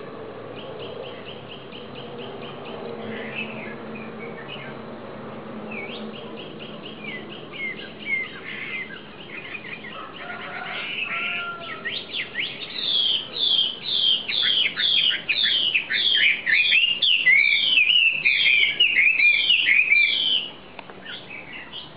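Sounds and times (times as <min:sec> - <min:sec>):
bird chirping and whistling: 0:05.7 - 0:10.0, 0:10.8 - 0:21.9.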